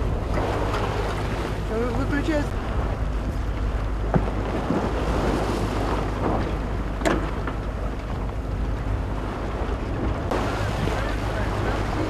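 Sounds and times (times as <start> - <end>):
choppy sea water: 0.0 - 12.0
low rumble: 0.0 - 12.0
wind buffeting microphone: 0.0 - 12.0.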